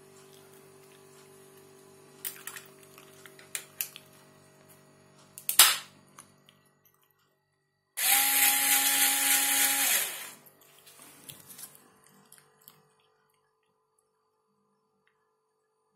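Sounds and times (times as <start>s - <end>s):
electric screwdriver motor whine: 8.0s - 10.4s.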